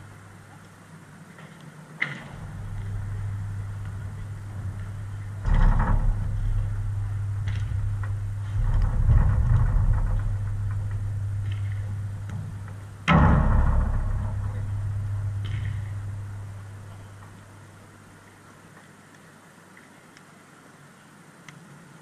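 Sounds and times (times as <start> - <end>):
steady low hum: 0.0 - 18.7
ringing bang: 2.2 - 17.8.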